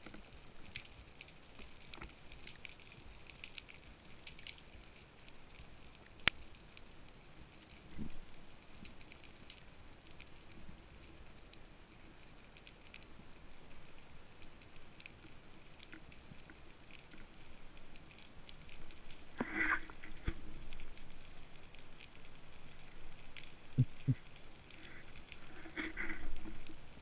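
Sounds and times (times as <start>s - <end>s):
underwater crackling clicks: 12.6s - 27.0s.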